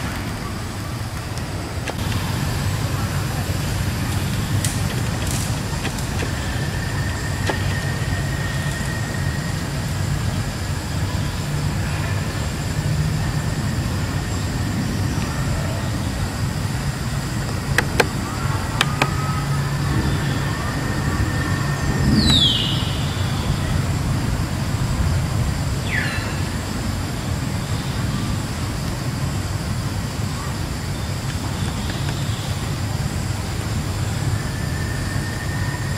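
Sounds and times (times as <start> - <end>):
sharp clicks: 3.6 - 8.8, 17.4 - 19.4.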